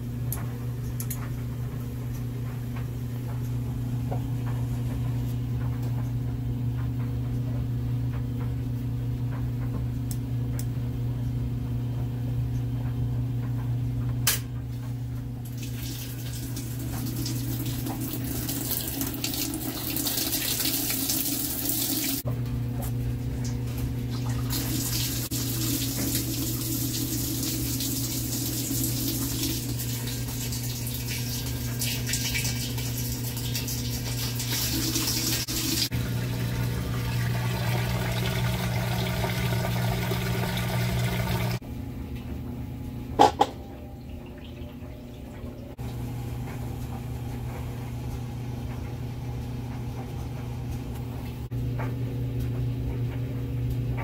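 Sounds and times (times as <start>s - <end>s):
washing machine hum: 0.0s - 54.0s
water rushing into tub: 24.1s - 41.6s.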